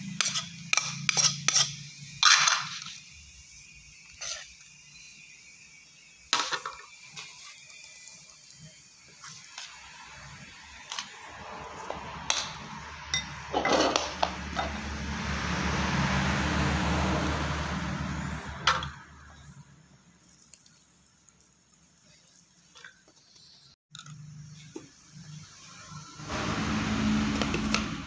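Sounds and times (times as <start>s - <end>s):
knife and spoon clinking on bowls: 13.1s - 14.8s.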